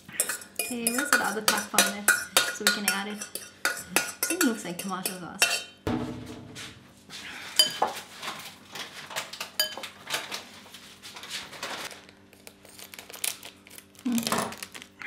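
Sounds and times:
fork clinking against glass bowl: 0:00.0 - 0:05.8, 0:09.6 - 0:09.9.

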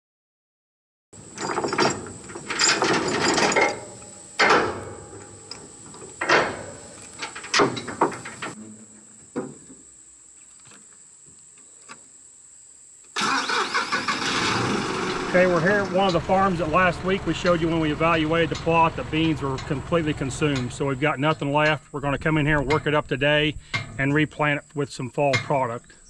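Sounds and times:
chains rattling against steel: 0:01.3 - 0:04.7
sharp metallic clanks: 0:01.3 - 0:08.6, 0:15.0 - 0:21.8.

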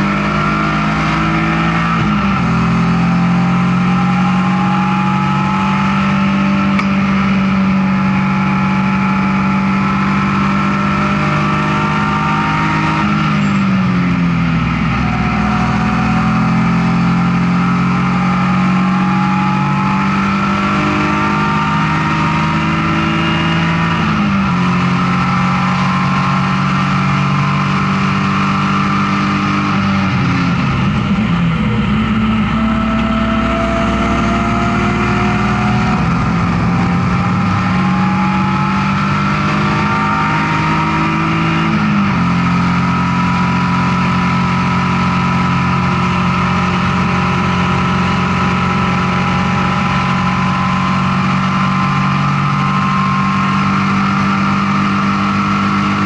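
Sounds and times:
race car engine under load: 0:00.0 - 0:56.0.

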